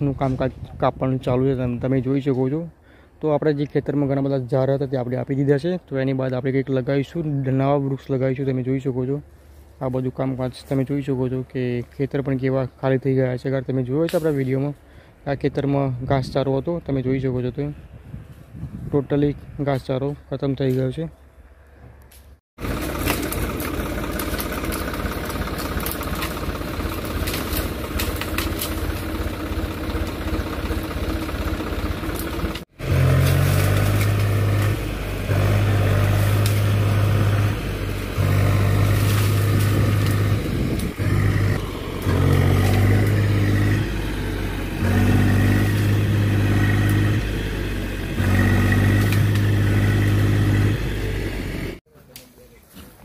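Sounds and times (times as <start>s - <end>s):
tractor engine revving under load: 22.6s - 51.8s.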